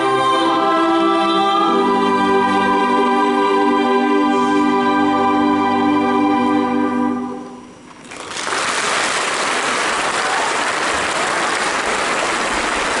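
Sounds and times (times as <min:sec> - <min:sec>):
women singing: 0:00.0 - 0:06.8
audience applause: 0:08.0 - 0:13.0.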